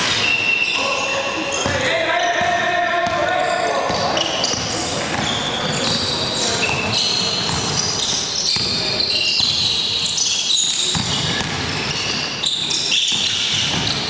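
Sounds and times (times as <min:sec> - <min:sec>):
sneakers squeaking on court: 0:00.0 - 0:14.0
players' voices: 0:00.5 - 0:09.8
basketball bouncing: 0:02.4 - 0:03.3, 0:03.9 - 0:09.8, 0:10.7 - 0:12.2, 0:13.0 - 0:14.0.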